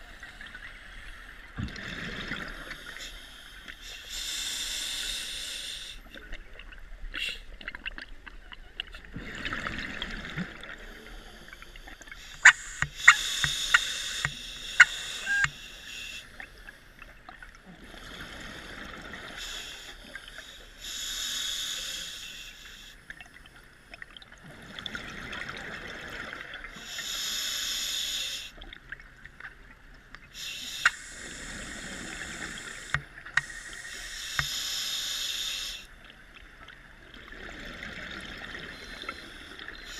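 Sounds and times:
diver breathing through regulator: 0:02.4 - 0:06.1, 0:10.9 - 0:16.4, 0:30.4 - 0:35.9.

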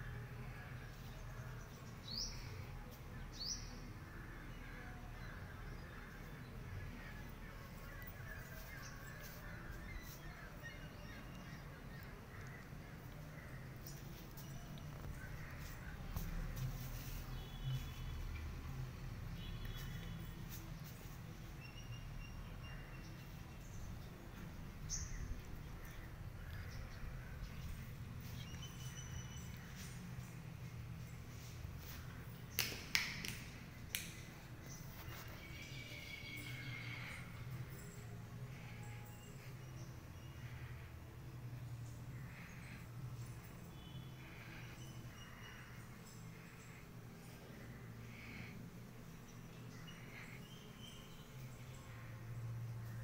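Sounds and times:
low outdoor background noise: 0:00.0 - 0:53.0
crows cawing faintly: 0:12.0 - 0:14.0, 0:14.8 - 0:16.6, 0:43.8 - 0:48.6.

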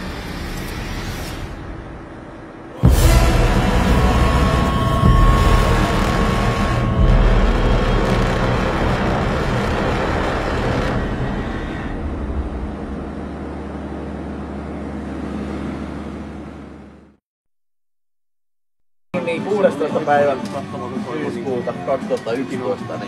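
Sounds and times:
vehicle engine running: 0:02.8 - 0:17.2.

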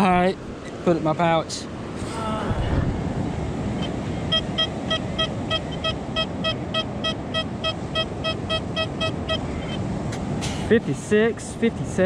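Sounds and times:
surf: 0:00.0 - 0:12.0
wind: 0:00.0 - 0:12.0
metal detector beeping: 0:03.8 - 0:09.8.

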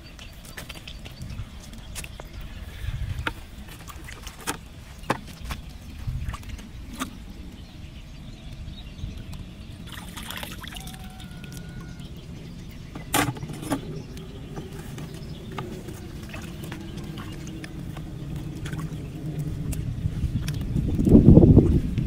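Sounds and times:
steady low rumble: 0:00.0 - 0:22.0
hands splashing in pond water: 0:09.8 - 0:11.8.

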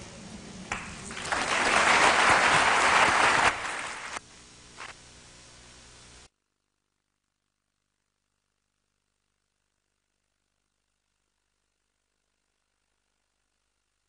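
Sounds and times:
faint steady hum: 0:00.0 - 0:14.0
audience applauding: 0:00.7 - 0:04.2.

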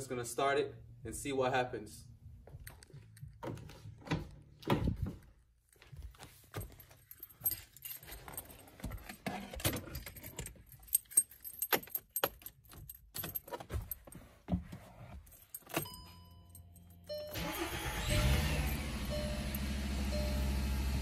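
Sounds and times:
keys jangling: 0:06.5 - 0:14.3, 0:15.2 - 0:17.6
car engine starting and idling: 0:16.9 - 0:21.0.

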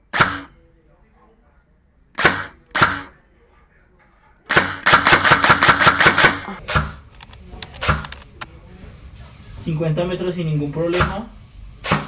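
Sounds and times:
airsoft gun firing: 0:00.0 - 0:00.6, 0:02.2 - 0:03.2, 0:04.5 - 0:07.0.

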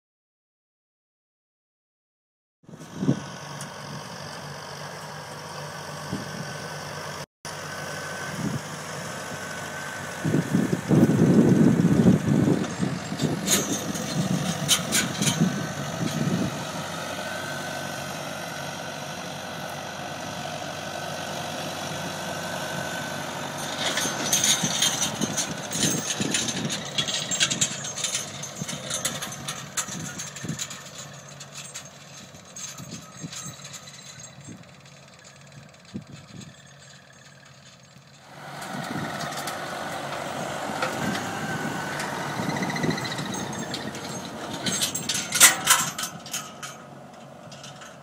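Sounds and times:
tractor diesel engine running: 0:02.7 - 0:48.0
seeder clattering: 0:12.3 - 0:16.8, 0:23.4 - 0:48.0.

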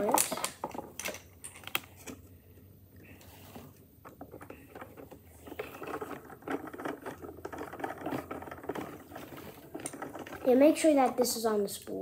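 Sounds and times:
toy crane spool clicking and rattling: 0:04.1 - 0:11.9.

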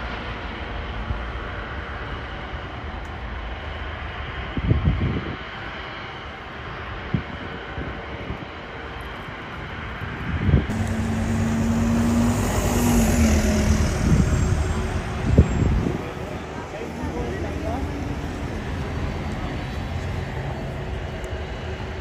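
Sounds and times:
helicopter rotor rumble: 0:04.5 - 0:22.0
road traffic: 0:08.7 - 0:22.0
vehicle engine humming: 0:10.7 - 0:22.0.

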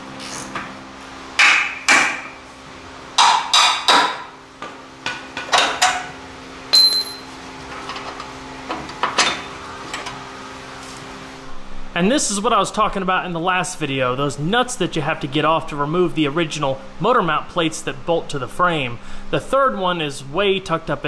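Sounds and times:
steady low hum: 0:00.0 - 0:21.0
bright ringing metal ping: 0:06.7 - 0:07.3.

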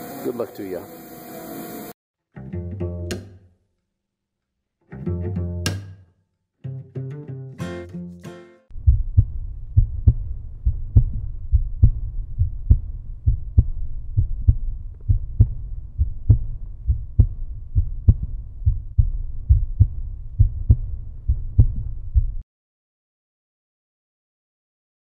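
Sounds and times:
low bass pulse: 0:08.7 - 0:22.4.

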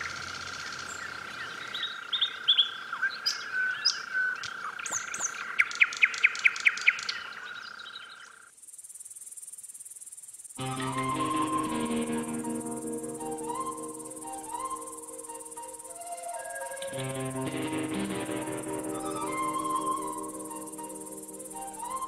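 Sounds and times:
bird calls and chirps: 0:00.0 - 0:08.5
high insect-like trill: 0:10.6 - 0:22.0
high-pitched whine: 0:10.6 - 0:22.0.

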